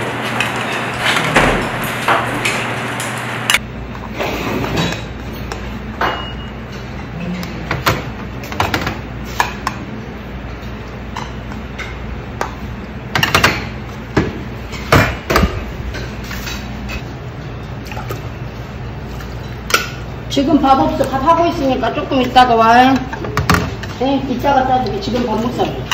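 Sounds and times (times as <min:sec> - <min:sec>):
bowls clinking: 0:04.6 - 0:09.8, 0:10.4 - 0:25.9.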